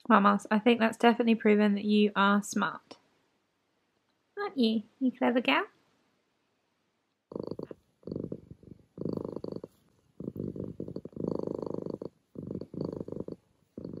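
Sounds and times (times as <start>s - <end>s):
cat purring: 7.3s - 14.0s.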